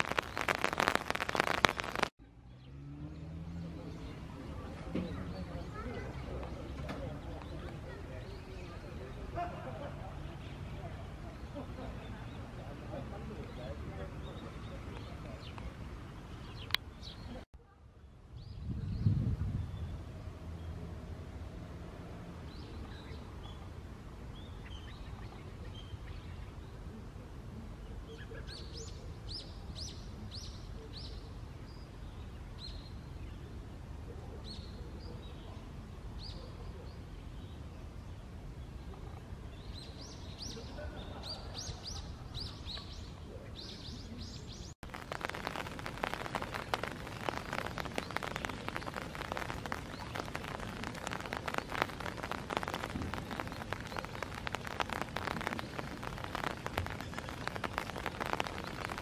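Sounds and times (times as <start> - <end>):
rain pattering: 0.0 - 2.2, 3.8 - 17.5, 39.5 - 59.0
small birds chirping: 0.0 - 20.9, 27.8 - 59.0.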